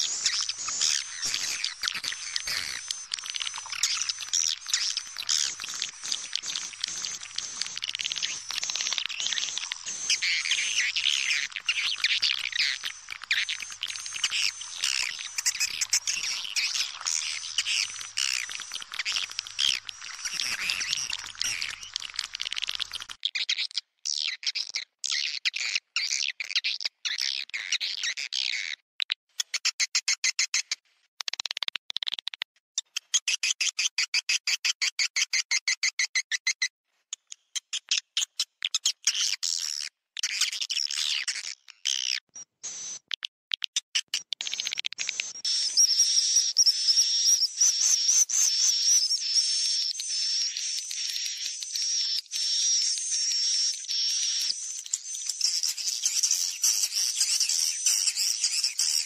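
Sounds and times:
fast regular clicks: 0.0 - 23.2, 31.2 - 32.6
swiftlets twittering: 0.0 - 23.2.

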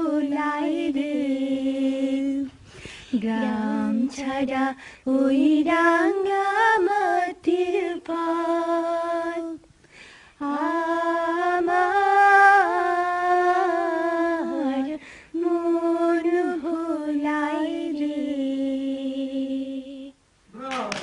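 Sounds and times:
singer breathing: 2.6 - 3.2, 4.8 - 5.1, 9.8 - 10.4, 15.0 - 15.4
woman singing unaccompanied: 3.1 - 9.7, 10.4 - 20.2.

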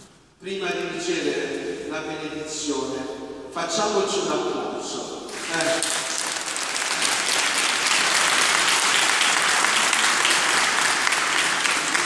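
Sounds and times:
congregation applauding: 5.3 - 12.0.

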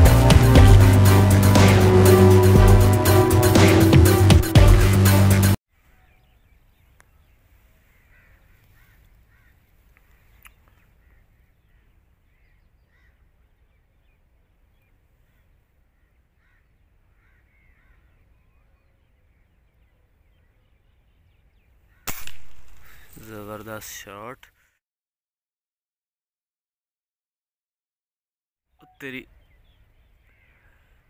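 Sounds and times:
faint bird calls: 5.8 - 23.6, 28.8 - 31.0
air rifle shot: 22.1 - 23.2.

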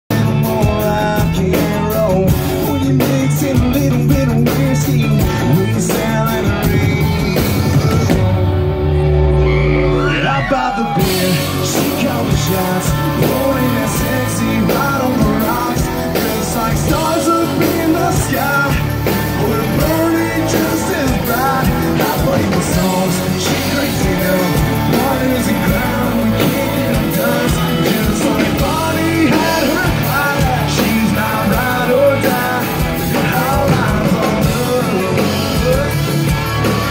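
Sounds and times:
man singing into microphone: 0.1 - 8.2, 9.8 - 36.9
live band music: 0.1 - 36.9.

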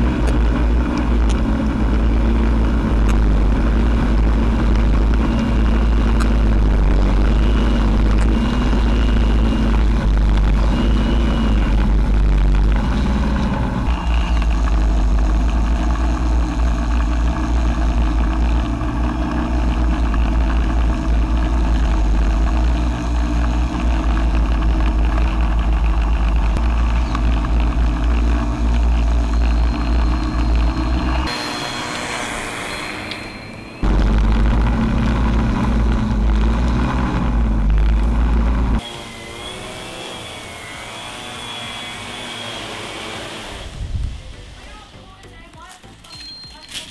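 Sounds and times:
drone propellers humming: 0.0 - 46.0
wind rumbling on microphone: 43.6 - 45.0.

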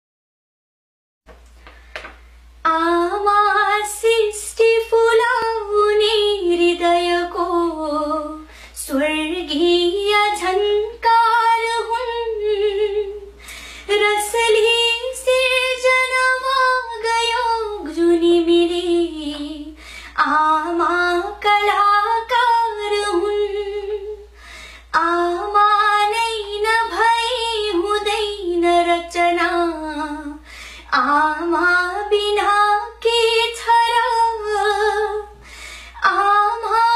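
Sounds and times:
woman singing unaccompanied: 2.6 - 36.9.

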